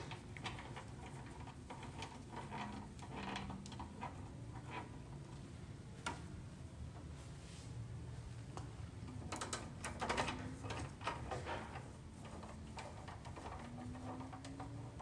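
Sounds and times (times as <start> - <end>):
window blind slats clicking: 8.6 - 15.0.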